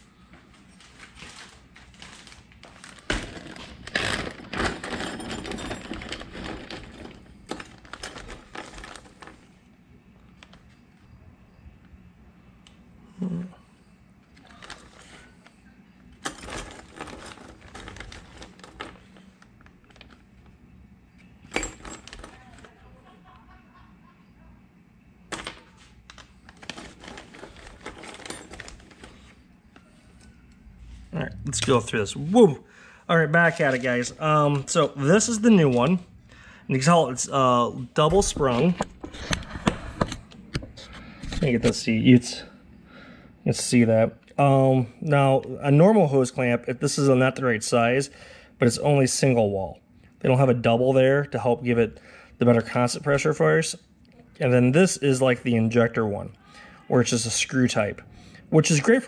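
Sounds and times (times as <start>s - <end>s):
metal hardware rattling: 3.1s - 9.3s, 21.5s - 22.7s, 26.6s - 29.3s.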